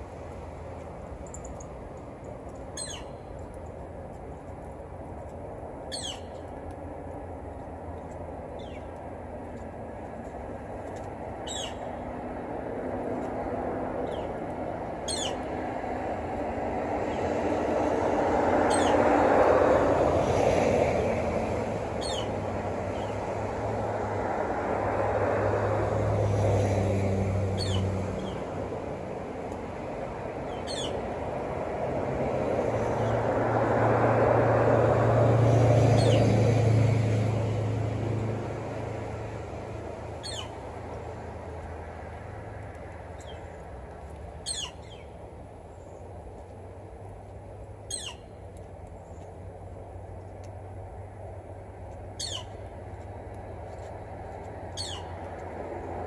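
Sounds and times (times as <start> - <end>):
high downward-slurred bird calls: 5.9 - 6.4, 11.4 - 11.9, 40.2 - 40.6, 44.4 - 45.1, 47.9 - 48.3, 52.2 - 52.6, 54.7 - 55.2.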